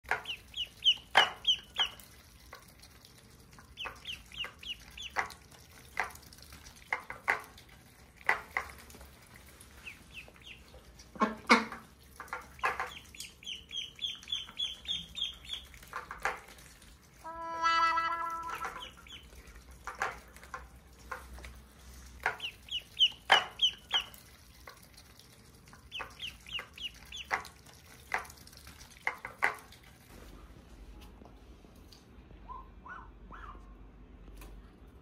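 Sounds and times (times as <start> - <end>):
duck bills clacking against a dish: 0.0 - 16.9, 17.8 - 30.0
ducklings peeping: 0.1 - 2.6, 3.6 - 7.5, 9.4 - 16.5, 18.1 - 20.2, 22.2 - 24.9, 25.7 - 28.5.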